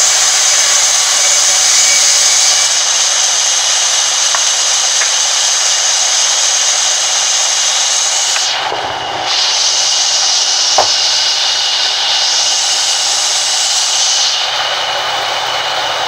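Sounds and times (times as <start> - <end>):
band saw hissing: 0.0 - 16.0
sharp knock of wood: 10.8 - 11.0.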